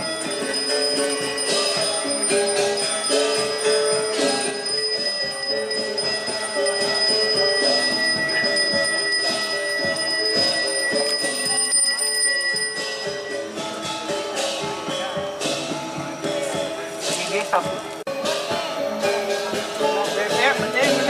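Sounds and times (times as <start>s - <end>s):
hand bell ringing: 0.0s - 15.4s.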